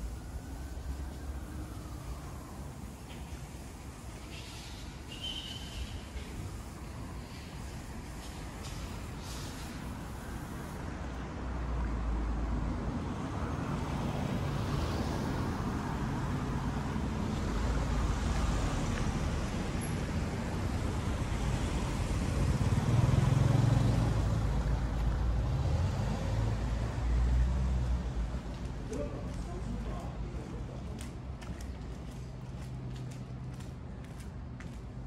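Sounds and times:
vehicles passing: 0.0 - 35.0.

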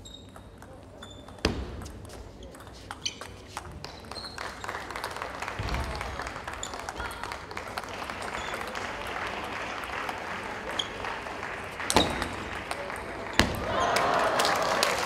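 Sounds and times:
spectators clapping: 3.7 - 15.0.

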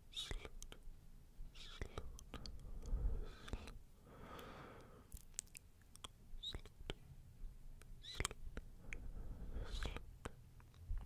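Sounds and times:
small wet clicks: 5.1 - 6.6.

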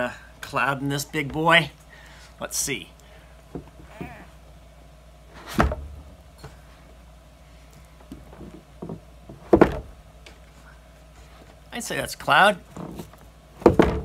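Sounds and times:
plastic jug knocks: 13.6 - 14.0.

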